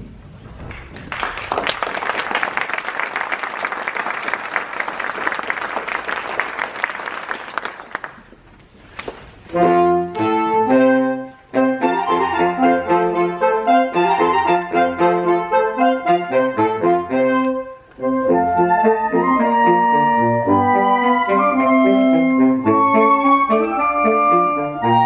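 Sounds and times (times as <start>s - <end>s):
audience applauding: 0.7s - 8.5s
saxophone quartet playing chords: 9.5s - 25.0s.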